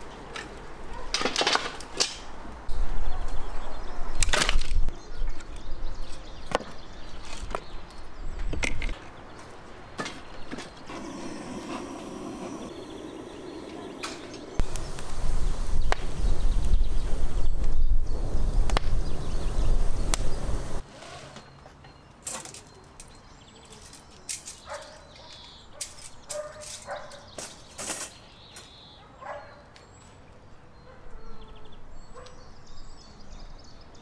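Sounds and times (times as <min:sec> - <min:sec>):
firewood crackling: 0:00.0 - 0:02.7, 0:10.7 - 0:20.8.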